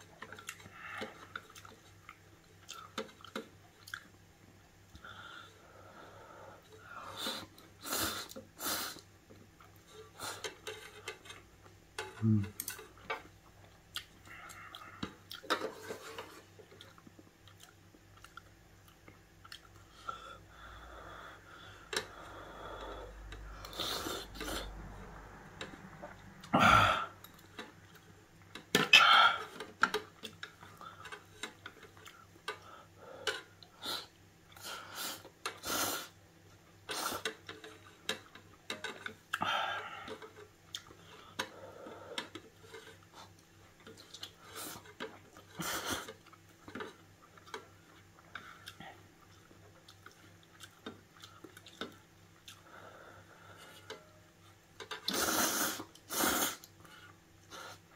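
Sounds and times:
noodles being slurped: 54.9s - 56.7s.

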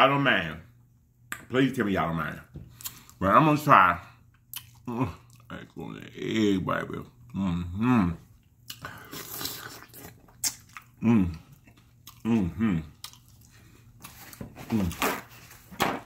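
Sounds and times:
wet chewing and lip smacking: 4.3s - 5.5s, 8.6s - 12.3s, 12.9s - 14.2s
person humming mm: 11.0s - 11.4s, 12.2s - 12.9s.

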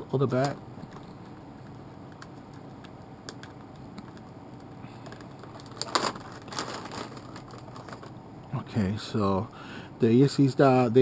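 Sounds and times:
plastic bag crinkling: 5.1s - 8.2s.

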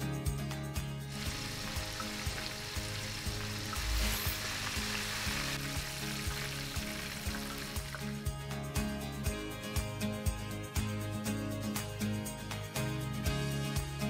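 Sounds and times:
chicken deep-frying in oil: 1.1s - 8.3s.

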